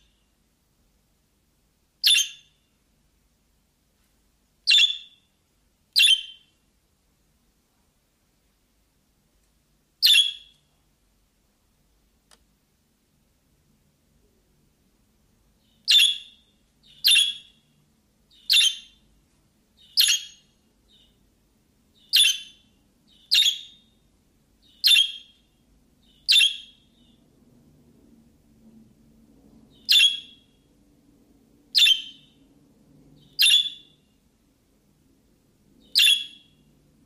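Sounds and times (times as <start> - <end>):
sharp bird chirps: 2.0 - 2.7, 4.7 - 5.3, 6.0 - 6.5, 10.0 - 10.7, 15.6 - 17.7, 18.3 - 19.1, 19.8 - 21.2, 22.0 - 24.0, 24.6 - 27.2, 29.7 - 30.6, 31.8 - 32.4, 33.2 - 34.1, 35.8 - 36.7.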